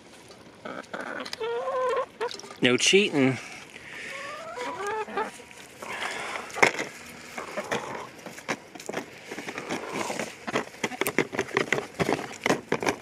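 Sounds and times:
hens' beaks tapping plastic tub: 6.4 - 13.0.

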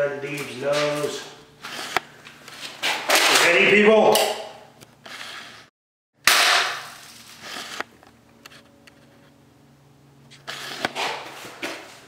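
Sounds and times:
rustling and scuffing: 0.2 - 3.2, 10.3 - 12.0.

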